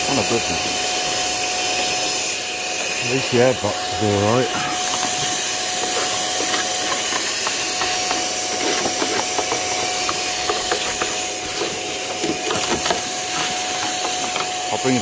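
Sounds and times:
vacuum cleaner whine: 0.0s - 15.0s
debris rattling in nozzle: 2.8s - 15.0s.

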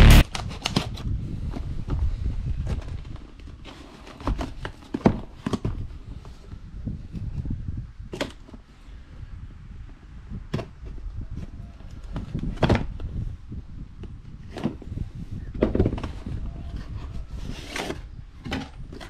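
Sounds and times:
cardboard rustling and scraping: 2.7s - 5.8s, 15.6s - 19.0s.

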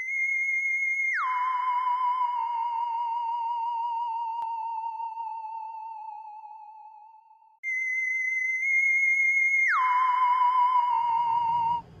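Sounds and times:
eerie theremin-like electronic tone: 0.2s - 7.1s, 9.5s - 11.9s.

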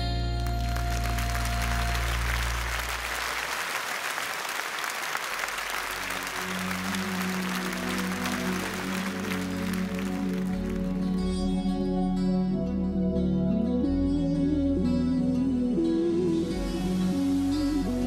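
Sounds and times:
soft sustained music: 0.0s - 3.5s, 5.4s - 18.0s
audience applauding: 0.4s - 11.3s
held final chord: 5.6s - 11.8s.

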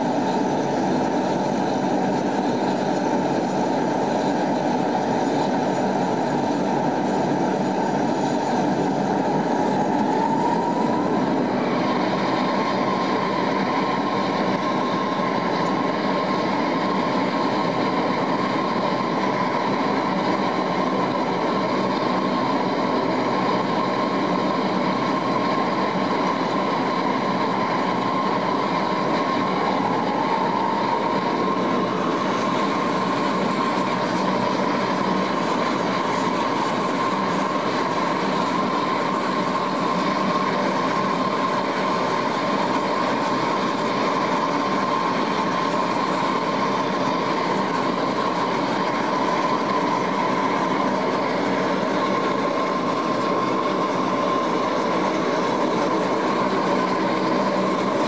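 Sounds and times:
turboprop engines droning: 0.0s - 58.0s.

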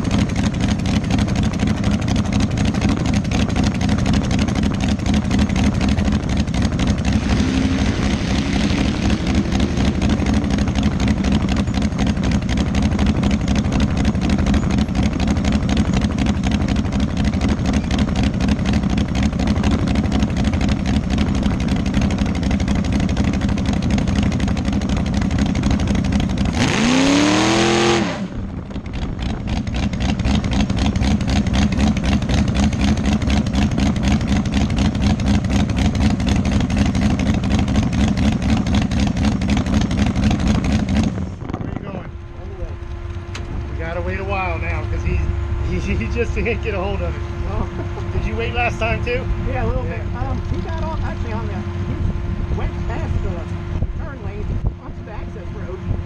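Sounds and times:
dragster engine idling: 0.0s - 56.0s
engine revving: 0.0s - 56.0s.

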